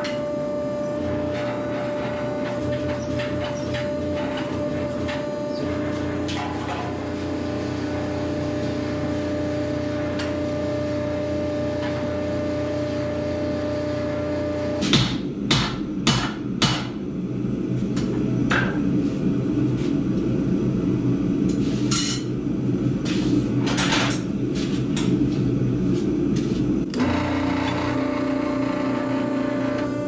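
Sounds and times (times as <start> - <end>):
machinery droning: 0.0 - 14.9, 17.1 - 30.0.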